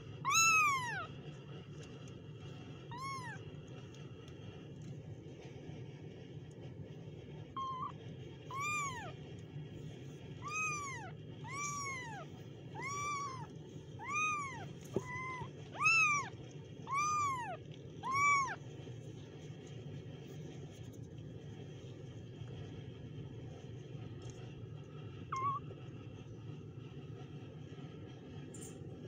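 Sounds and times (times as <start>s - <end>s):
steady low hum: 0.0s - 29.0s
kittens mewing: 0.3s - 1.1s, 2.9s - 3.5s, 7.6s - 7.9s, 8.5s - 9.2s, 10.4s - 18.6s, 25.3s - 25.6s.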